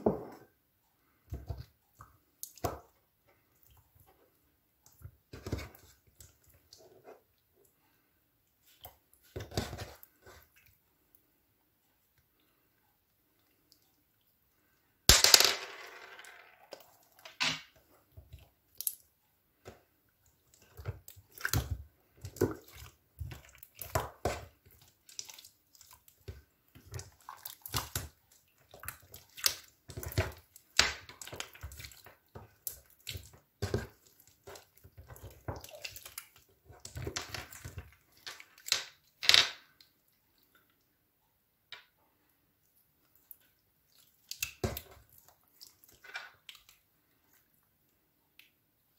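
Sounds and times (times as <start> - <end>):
hands squishing slime: 19.6 - 39.2, 43.0 - 47.6.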